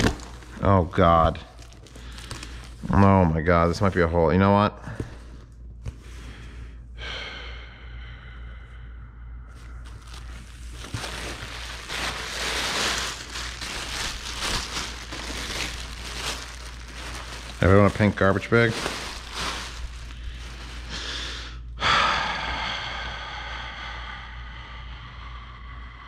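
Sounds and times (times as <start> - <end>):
plastic bag crinkling: 0.0 - 2.9, 9.8 - 21.5.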